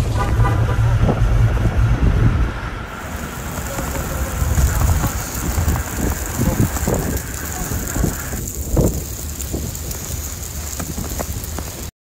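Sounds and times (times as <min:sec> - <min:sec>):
wind rumbling on microphone: 0:00.0 - 0:11.9
hiss of falling precipitation: 0:02.5 - 0:11.9.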